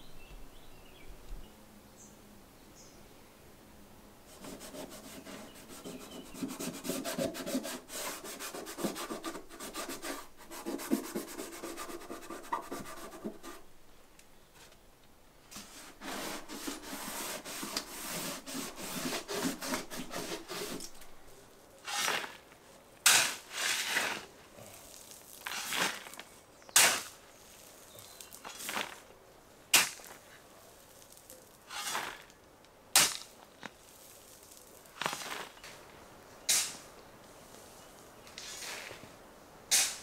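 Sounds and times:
scraping against stone wall: 0:04.3 - 0:13.8, 0:15.5 - 0:22.5, 0:25.4 - 0:27.1, 0:31.7 - 0:32.3
shovel crunching into gravel: 0:21.8 - 0:29.1, 0:29.7 - 0:30.3, 0:31.1 - 0:32.4, 0:33.0 - 0:35.8, 0:38.3 - 0:39.0.

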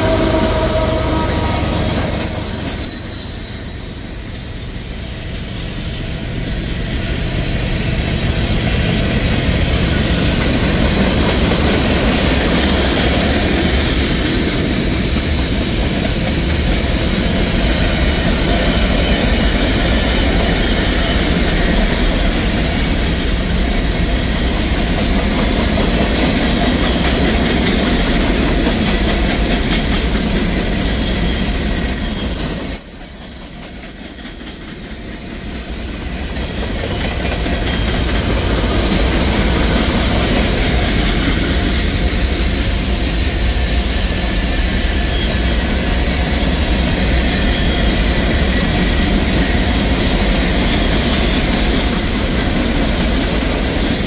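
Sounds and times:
high wheel squeal: 0:00.0 - 0:04.7, 0:18.7 - 0:24.4, 0:28.3 - 0:34.1, 0:44.1 - 0:54.0
train wheels rumbling on rail: 0:00.0 - 0:54.0.

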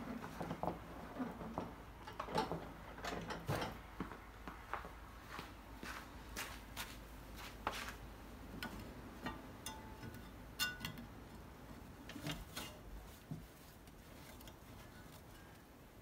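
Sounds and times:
light clicks and taps on metal: 0:08.5 - 0:15.7
metallic ring: 0:09.3 - 0:11.0.

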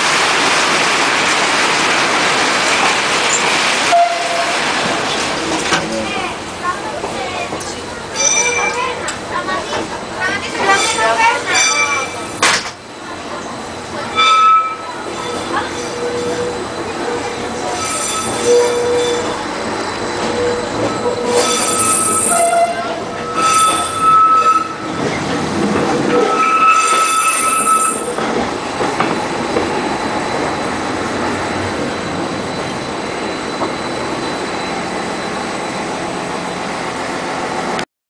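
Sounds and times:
railcar rolling noise: 0:00.0 - 0:37.8
train wheels squealing: 0:13.0 - 0:25.4, 0:26.0 - 0:36.8.

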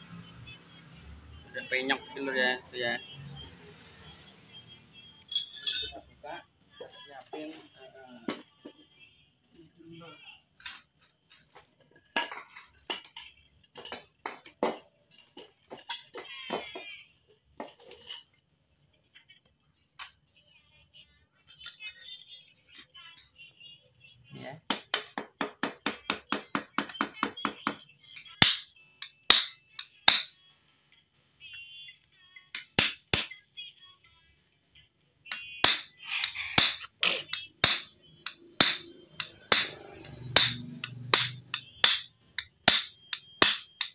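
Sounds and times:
metal tools clinking: 0:05.2 - 0:06.2, 0:12.0 - 0:16.3, 0:17.6 - 0:18.3, 0:21.5 - 0:22.7
hammer striking metal: 0:24.7 - 0:30.4, 0:32.6 - 0:33.4, 0:35.3 - 0:43.9.

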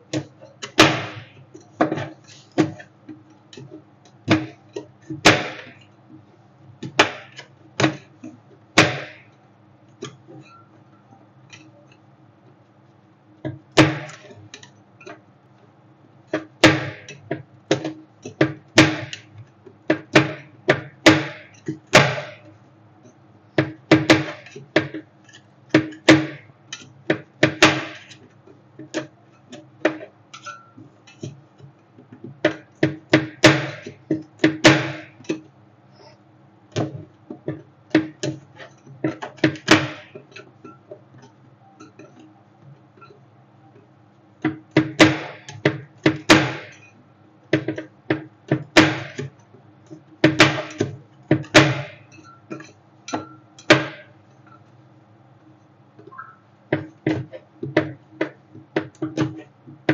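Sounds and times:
metal spatulas clacking on steel: 0:23.6 - 0:31.7, 0:47.6 - 0:54.0
spatulas scraping steel plate: 0:50.6 - 0:53.5.

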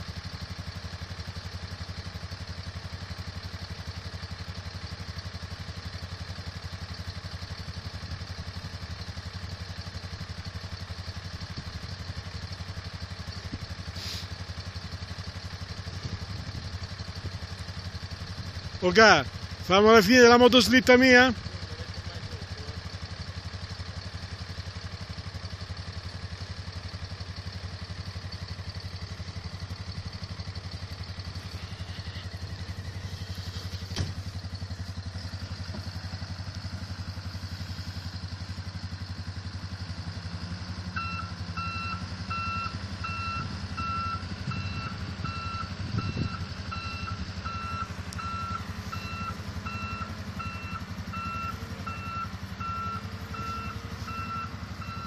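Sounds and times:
diesel engine rumbling: 0:00.0 - 0:55.0
reversing alarm beeping: 0:40.9 - 0:55.0.

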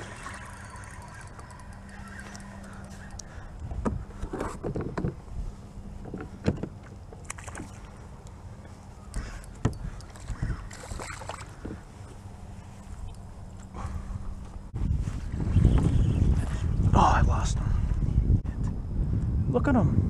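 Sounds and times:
water splashing: 0:00.0 - 0:01.6, 0:10.2 - 0:11.6
steady low hum: 0:00.0 - 0:20.0.

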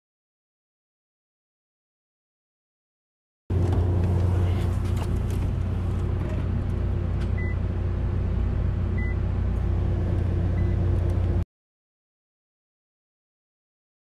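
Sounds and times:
car low hum: 0:03.5 - 0:11.4
short electronic beeps: 0:07.4 - 0:07.6, 0:09.0 - 0:09.2.

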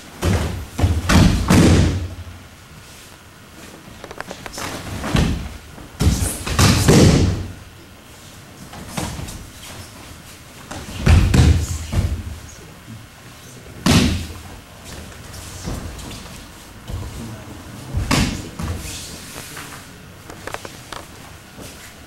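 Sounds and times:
bodies thudding onto mat: 0:00.2 - 0:02.2
soft footfalls: 0:13.9 - 0:22.0.

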